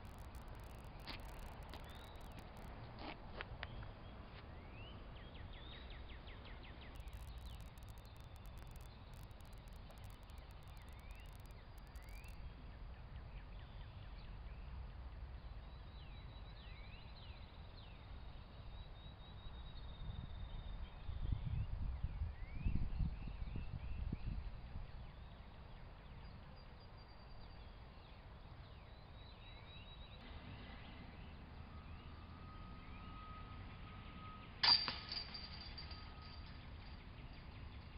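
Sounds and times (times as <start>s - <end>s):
birds chirping: 0.0s - 2.6s, 3.7s - 14.3s
low steady rumble: 0.0s - 3.0s, 7.0s - 18.5s.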